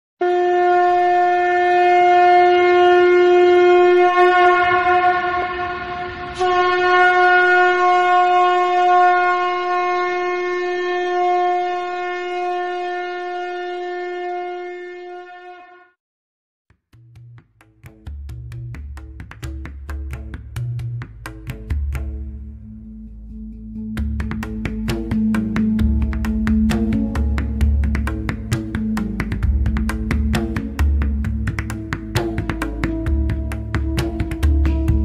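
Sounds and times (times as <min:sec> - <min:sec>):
horn-like wind instrument notes: 0:00.2 - 0:16.0, 0:24.0 - 0:35.0.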